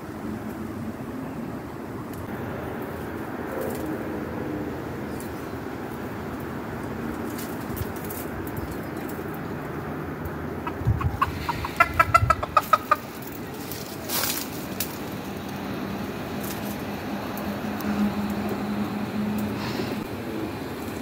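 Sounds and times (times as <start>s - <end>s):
chickens clucking: 10.2s - 21.0s.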